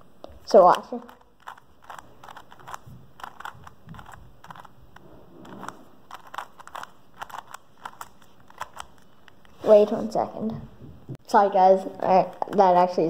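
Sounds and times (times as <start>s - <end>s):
plastic puzzle cube clicking: 0.6s - 9.5s.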